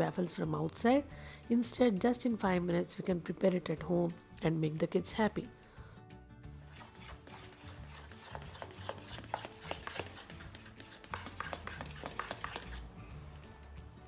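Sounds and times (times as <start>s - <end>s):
utensil scraping steel bowl: 6.6s - 12.9s.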